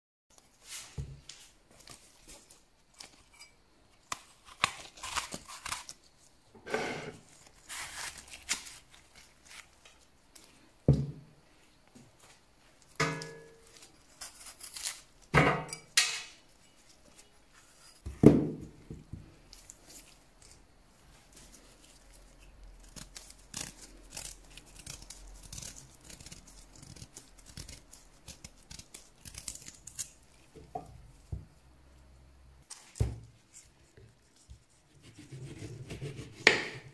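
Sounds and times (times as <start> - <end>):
knife peeling and scraping: 1.8 - 6.0, 6.7 - 10.1, 13.0 - 15.9, 21.3 - 30.6, 32.7 - 36.9.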